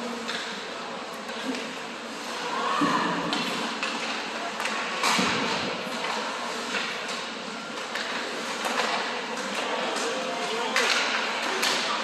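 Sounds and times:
hockey sticks and puck clacking: 0.2 - 0.6, 3.3 - 12.0.

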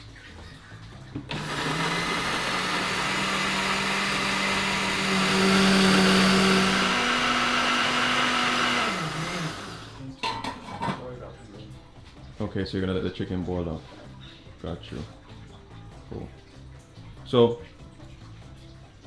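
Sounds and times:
blender motor whirring: 1.3 - 10.0.

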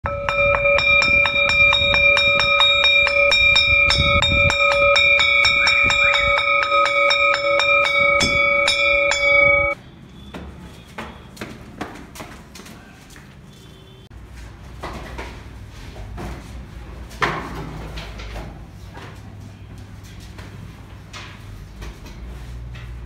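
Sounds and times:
school bell ringing: 0.0 - 9.8.

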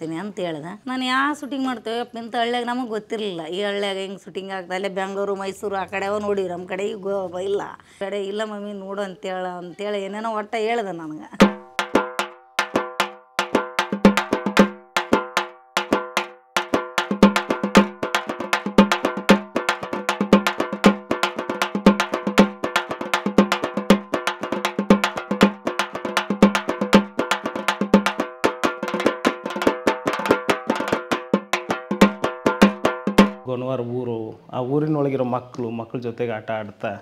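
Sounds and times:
fast tuned drumming: 11.3 - 33.6.

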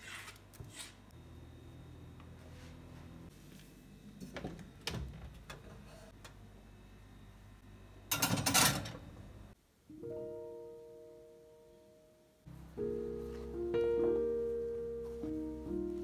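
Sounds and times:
slow piano notes: 9.9 - 16.0.

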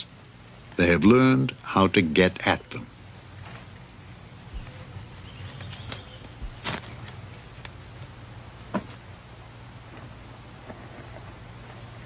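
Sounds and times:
faint high insect-like tone: 0.0 - 12.0
steady low hum: 0.0 - 12.0
soft rustles and clicks: 4.5 - 8.1.

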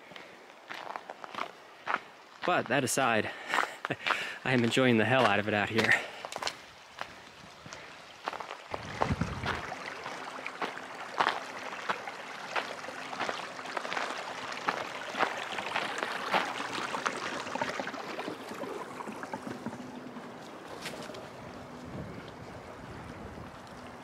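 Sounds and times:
creek flowing: 0.0 - 24.0.

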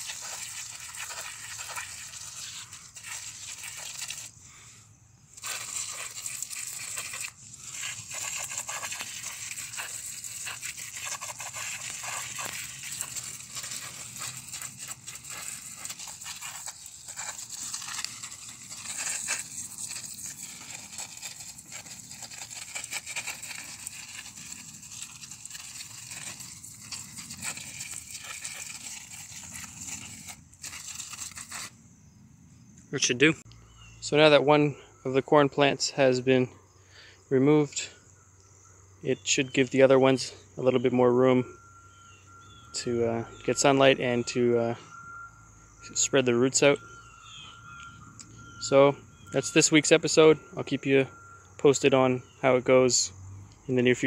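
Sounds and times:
leaves and stalks rustling: 5.4 - 31.7.

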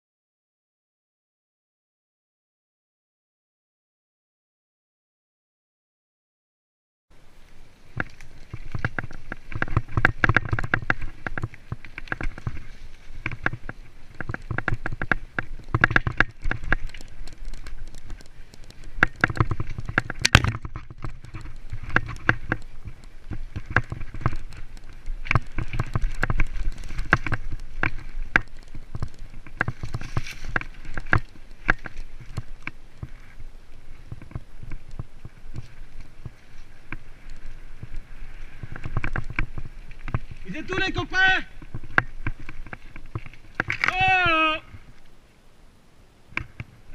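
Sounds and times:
wind rumble: 7.1 - 46.9
tyres rolling over dirt and leaves: 7.2 - 45.2
bike knocks and rattles: 7.9 - 33.2, 34.0 - 40.6.

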